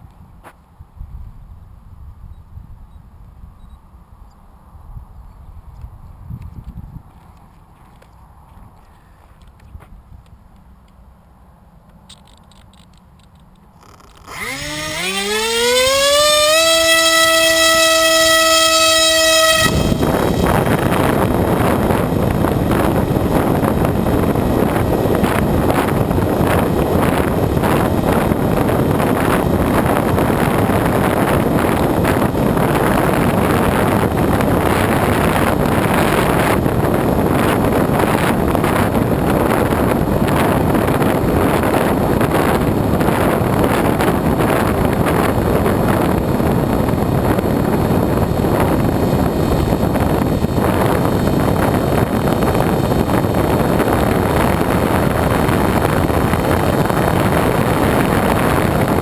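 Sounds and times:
wind rush over microphone: 0.0s - 10.8s, 12.2s - 59.0s
electric motor whine: 13.8s - 21.8s.

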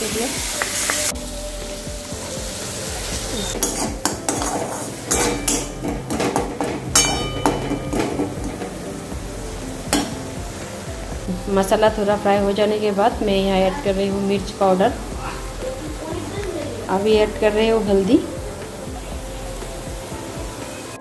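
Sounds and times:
paste sizzling in oil: 0.0s - 21.0s
spatula scraping a wok: 3.4s - 6.9s.

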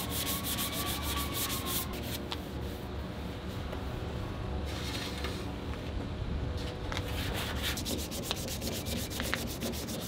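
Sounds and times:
sandpaper rubbing on paint: 0.0s - 2.2s, 7.1s - 10.0s.

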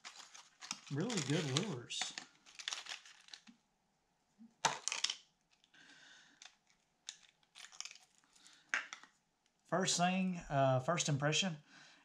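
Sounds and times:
plastic packaging crinkling: 0.0s - 3.6s, 4.6s - 5.7s, 6.4s - 9.2s.

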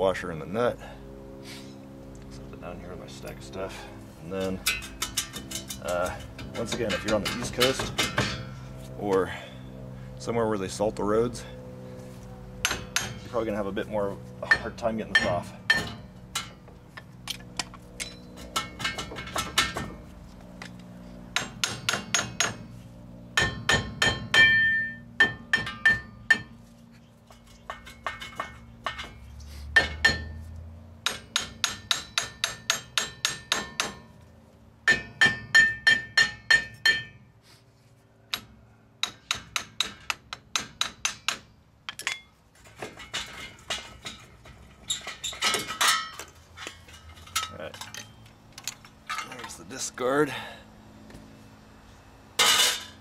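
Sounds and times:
hammer striking metal hub: 4.4s - 8.6s, 12.6s - 13.6s, 14.4s - 20.0s, 21.3s - 26.6s, 27.3s - 34.2s, 34.8s - 37.3s, 38.3s - 49.6s, 52.4s - 53.0s.

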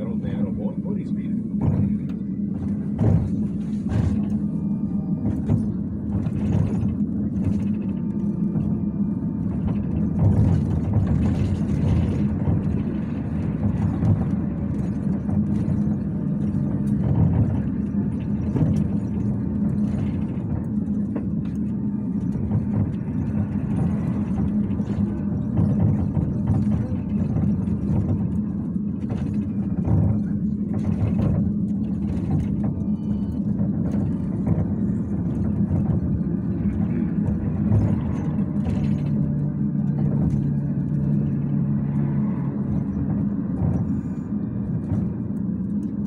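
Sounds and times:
road rumble: 0.0s - 46.0s
trolleybus low hum: 0.0s - 46.0s
clicks and rattles: 9.4s - 44.0s.

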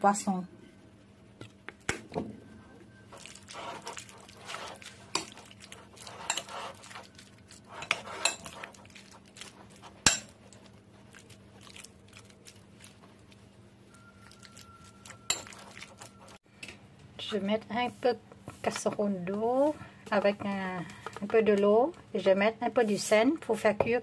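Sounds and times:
spoon clinking and scraping bowl: 3.1s - 9.1s, 13.9s - 16.4s.

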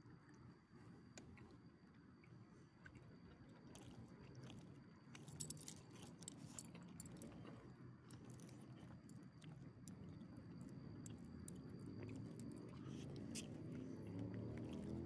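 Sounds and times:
dog collar tags clinking: 5.3s - 7.3s.

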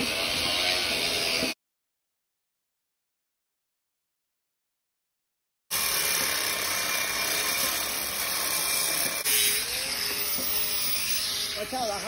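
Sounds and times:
angle grinder cutting metal: 0.0s - 1.6s, 5.7s - 12.0s
hissing power tool: 5.7s - 12.0s.

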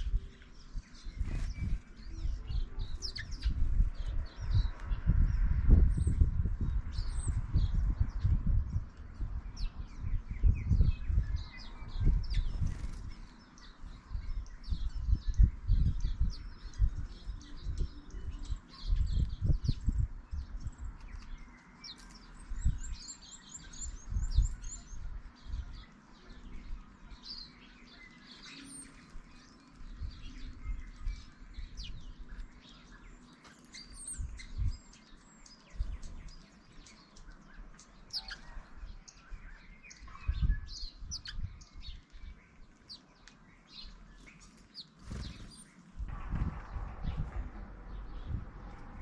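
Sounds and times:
small birds chirping: 0.0s - 49.0s
low thumps: 46.0s - 49.0s.

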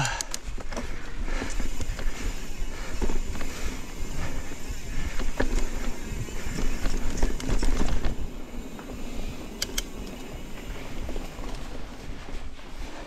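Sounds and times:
bike tyre rumble on dirt: 0.4s - 13.0s
bike knocks and clicks: 4.7s - 11.6s.

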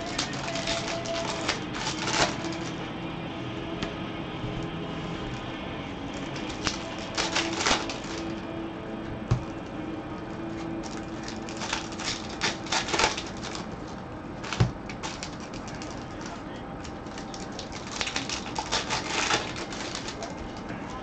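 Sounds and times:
cards flipping and sliding: 0.0s - 2.8s, 6.2s - 8.4s.

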